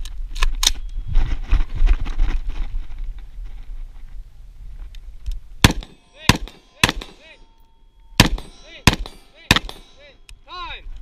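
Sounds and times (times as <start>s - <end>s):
rifle shots: 5.6s - 7.4s, 8.2s - 10.1s
steel target ringing ping: 5.6s - 10.5s.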